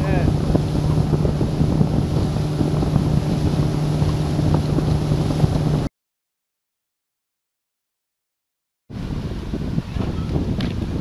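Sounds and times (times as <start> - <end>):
boat engine hum: 0.0 - 5.9
rushing water: 0.0 - 5.9
wind buffeting microphone: 0.0 - 5.9, 8.9 - 11.0.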